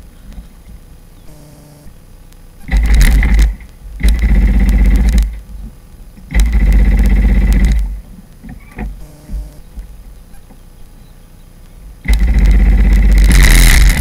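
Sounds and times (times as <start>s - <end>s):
jet ski engine revving: 2.6s - 9.6s, 12.0s - 14.0s.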